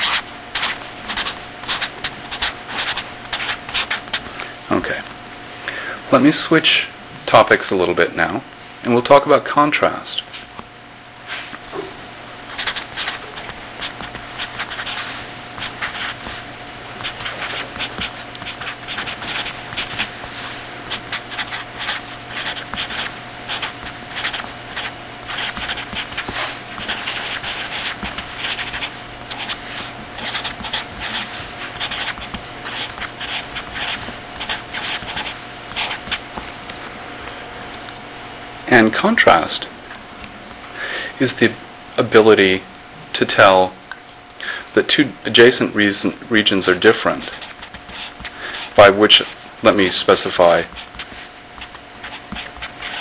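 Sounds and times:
pen scratching while writing: 0.0s - 4.2s, 12.5s - 16.4s, 17.0s - 36.2s, 47.2s - 48.3s, 50.4s - 53.0s
steady electrical hum: 0.0s - 53.0s.

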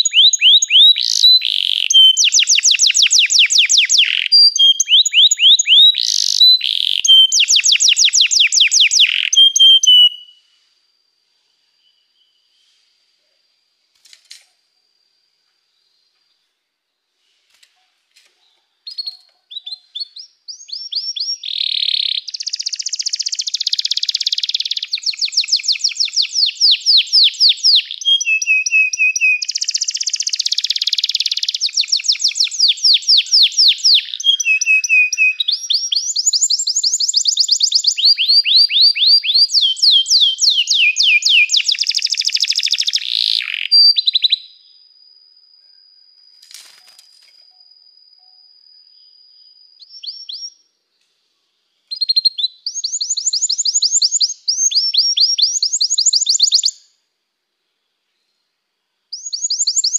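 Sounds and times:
canary singing: 0.0s - 10.4s, 18.8s - 44.7s, 49.8s - 50.6s, 51.9s - 56.8s, 59.1s - 59.9s
faint steady high tone: 46.8s - 49.8s.

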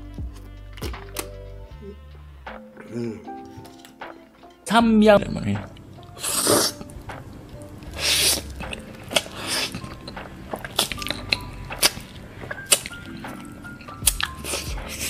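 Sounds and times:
quiet background music: 0.0s - 15.0s
slurping noodles: 6.2s - 7.0s, 7.9s - 13.0s, 14.2s - 15.0s
wet mouth clicks: 7.8s - 10.0s, 10.6s - 12.1s.

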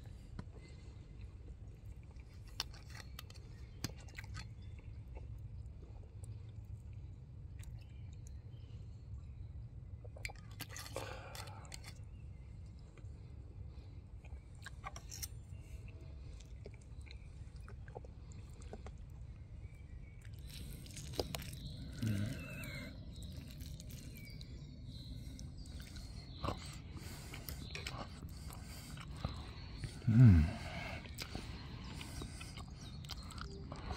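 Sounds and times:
person chewing food: 0.0s - 8.4s, 10.0s - 33.9s
low outdoor rumble: 0.0s - 33.9s.

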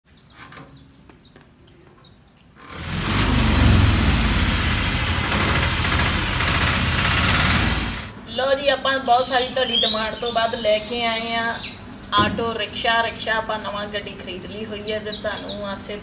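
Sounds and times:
birds chirping: 0.0s - 2.8s, 7.9s - 16.0s
auto rickshaw engine running rough: 2.7s - 8.1s.

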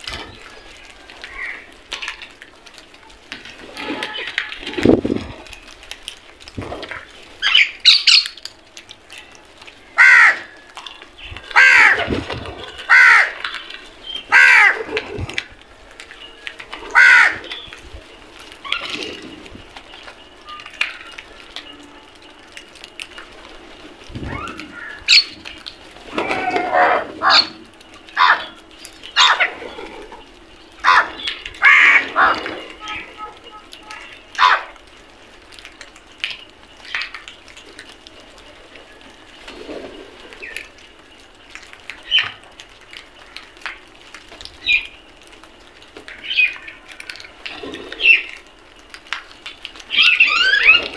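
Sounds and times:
crows cawing: 1.1s - 2.2s, 9.8s - 15.5s, 16.7s - 17.7s, 24.4s - 34.8s.

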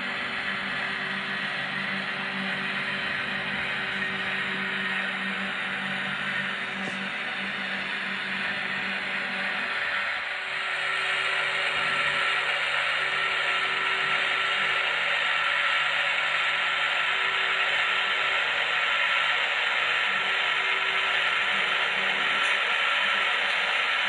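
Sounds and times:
model train whirring hiss: 9.4s - 24.0s.

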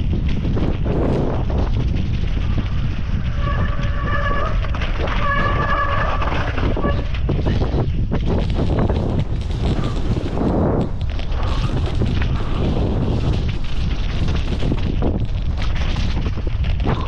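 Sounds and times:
wind rush: 0.0s - 17.0s.

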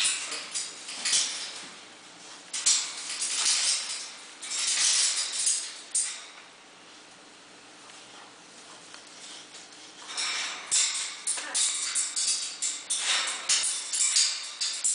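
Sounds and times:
dogs scuffling and rustling: 0.0s - 7.2s.

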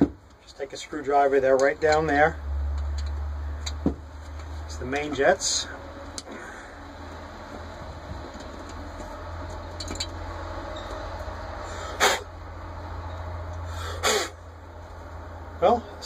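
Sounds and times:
steady low hum: 0.0s - 16.0s
short noisy bursts: 11.6s - 12.3s, 13.7s - 14.4s.

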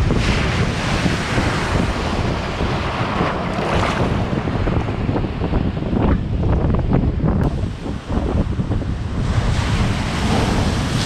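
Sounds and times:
waves crashing: 0.0s - 5.5s, 7.4s - 11.0s
wind buffeting microphone: 0.0s - 11.0s.

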